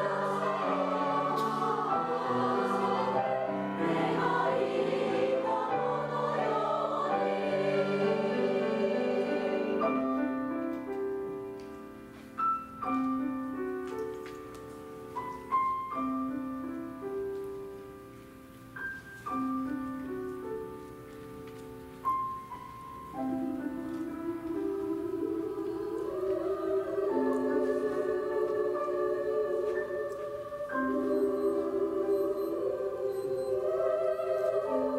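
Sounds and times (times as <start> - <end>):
women's choir singing: 0.0 - 10.8, 23.1 - 34.9
grand piano: 0.0 - 34.9.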